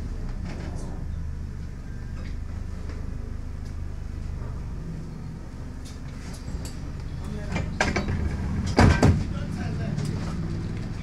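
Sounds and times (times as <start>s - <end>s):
bus engine humming: 0.0s - 11.0s
interior clicks and rattles: 5.8s - 11.0s.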